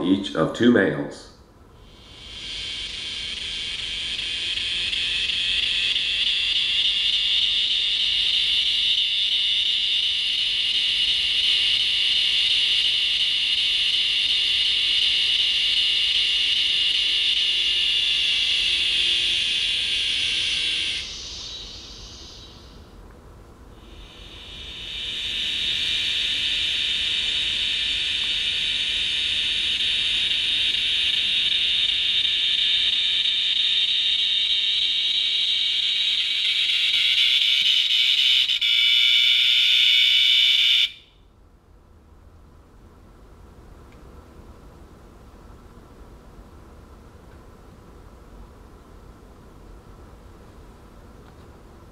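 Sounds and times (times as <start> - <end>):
cicada buzzing: 1.8 - 23.0, 23.7 - 41.0.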